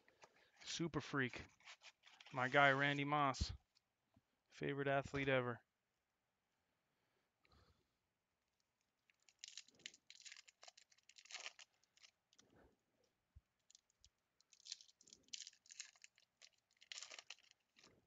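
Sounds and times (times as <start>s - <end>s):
foil wrapper crinkling and tearing: 1.5s - 2.8s, 9.1s - 12.5s, 13.6s - 18.0s.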